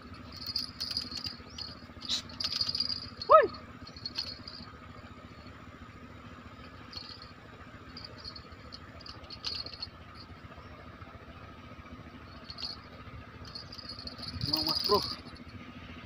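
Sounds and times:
insects chirping: 0:00.0 - 0:05.6, 0:06.6 - 0:10.6, 0:12.2 - 0:15.5
low background rush: 0:00.0 - 0:16.0.

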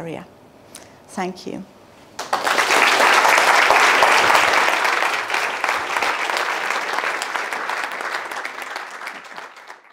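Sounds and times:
audience applauding: 0:02.2 - 0:09.9.

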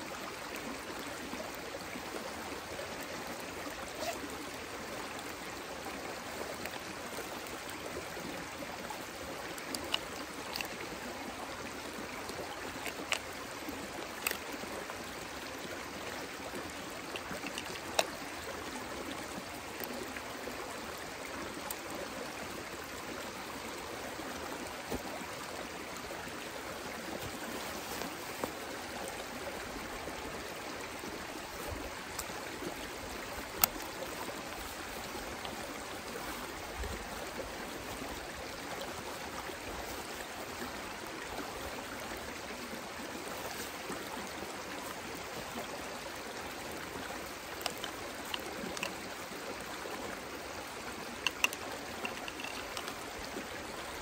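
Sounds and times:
mountain stream running: 0:00.0 - 0:54.0
sharp clicks of gear handled: 0:09.6 - 0:10.8, 0:12.8 - 0:13.4, 0:17.1 - 0:18.2, 0:33.4 - 0:33.9, 0:47.4 - 0:49.0, 0:51.2 - 0:53.2.

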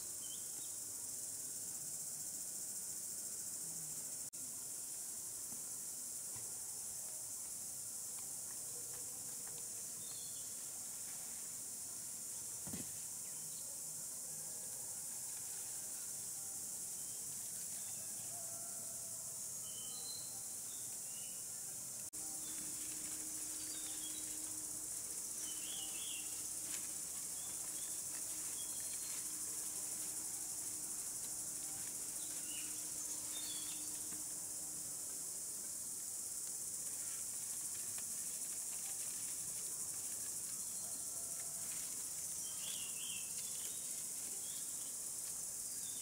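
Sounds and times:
cicadas droning: 0:00.0 - 0:46.0
bird chirps: 0:19.6 - 0:21.4.

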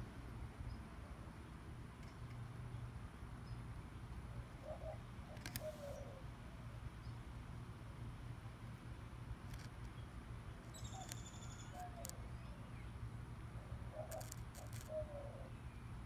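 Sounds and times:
faint low bird calls: 0:13.6 - 0:15.9.

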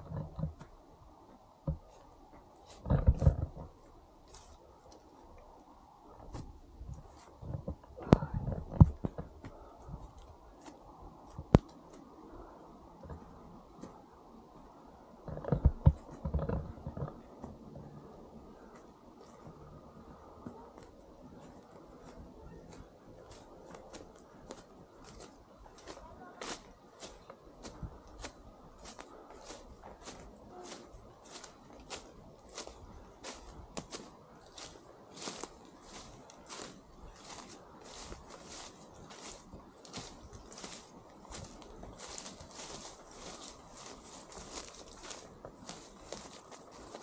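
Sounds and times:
footsteps on dry leaves: 0:01.9 - 0:05.3, 0:20.5 - 0:47.0.

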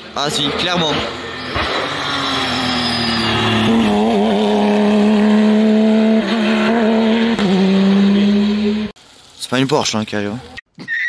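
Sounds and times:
rally car engine at high revs: 0:00.3 - 0:09.0.

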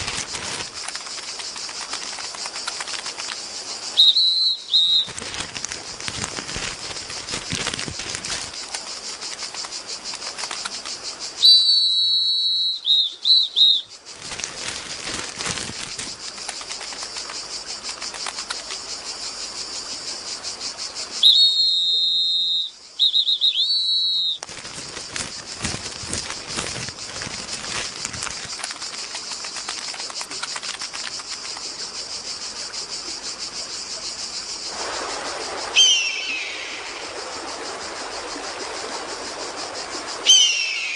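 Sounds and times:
high warbling whistles: 0:04.0 - 0:05.2, 0:35.7 - 0:37.2, 0:40.2 - 0:40.9.

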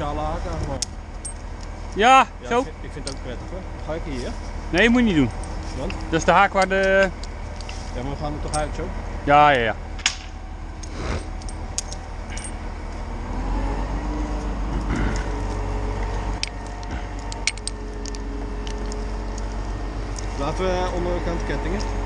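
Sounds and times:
diesel engine running: 0:00.0 - 0:22.0
metallic chain clinks: 0:11.2 - 0:12.6, 0:16.4 - 0:19.5.

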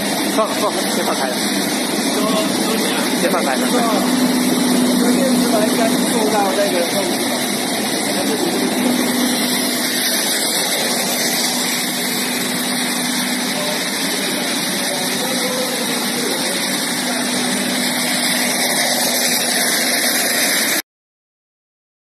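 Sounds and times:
air compressor rushing noise: 0:00.0 - 0:20.8.

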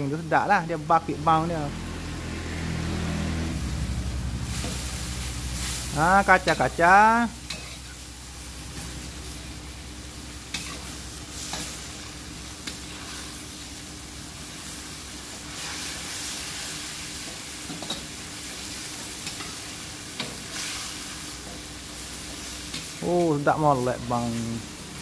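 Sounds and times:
vegetables sizzling in a wok: 0:00.0 - 0:25.0
metal spatula scraping a wok: 0:03.6 - 0:06.8, 0:07.4 - 0:08.0, 0:10.4 - 0:13.5, 0:19.2 - 0:22.9.

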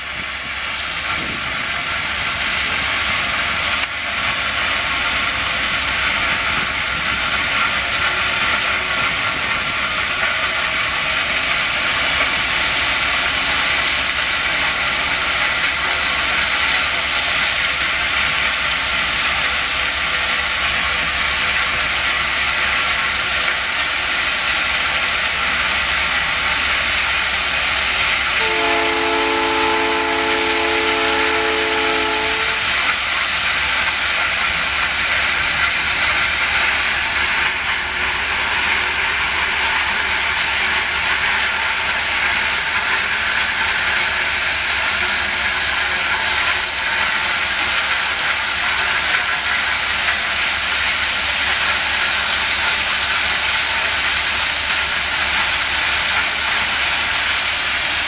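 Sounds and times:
train running: 0:00.0 - 0:58.0
locomotive horn: 0:28.4 - 0:32.9.

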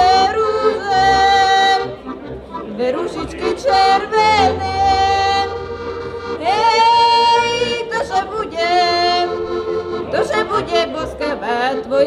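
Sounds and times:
woman singing folk song: 0:00.0 - 0:01.9, 0:02.8 - 0:05.6, 0:06.4 - 0:09.4, 0:10.1 - 0:12.0
button accordion chord: 0:00.0 - 0:12.0.

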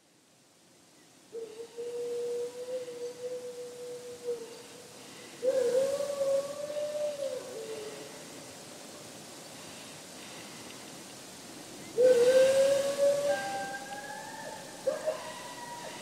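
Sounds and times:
dog howling: 0:12.0 - 0:16.0.

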